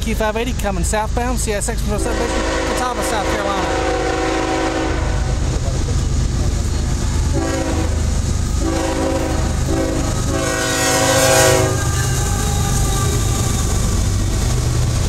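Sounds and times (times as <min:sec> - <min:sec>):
diesel locomotives rumbling: 0:00.0 - 0:15.0
freight cars rolling: 0:00.0 - 0:15.0
locomotive air horn blasts: 0:02.0 - 0:05.4, 0:07.3 - 0:13.2.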